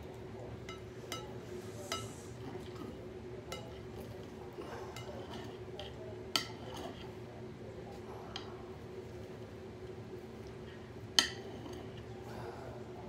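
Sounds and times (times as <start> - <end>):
cutlery clinking on a plate: 0.6 - 2.9, 3.5 - 4.2, 4.9 - 7.1, 11.2 - 12.0.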